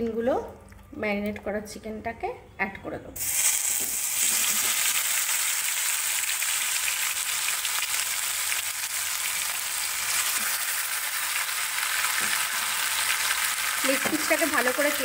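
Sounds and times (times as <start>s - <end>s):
chicken sizzling in hot oil: 3.2s - 15.0s.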